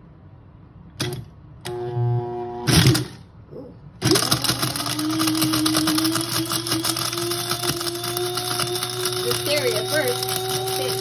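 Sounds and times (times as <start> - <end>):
dried pieces rattling in grinder: 4.0 - 11.0
spice grinder motor whine: 4.0 - 11.0.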